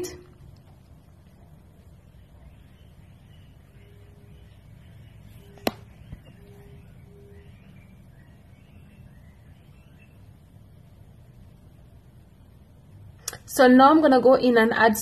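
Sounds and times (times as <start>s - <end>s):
low steady hum: 0.0s - 15.0s
sharp knock: 5.6s - 5.9s
faint tap: 5.6s - 6.4s.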